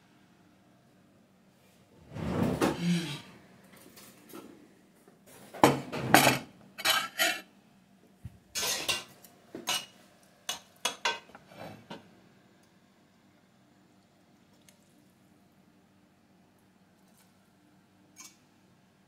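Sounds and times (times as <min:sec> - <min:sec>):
dishes and cutlery clinking: 0:05.6 - 0:07.5, 0:08.5 - 0:12.0.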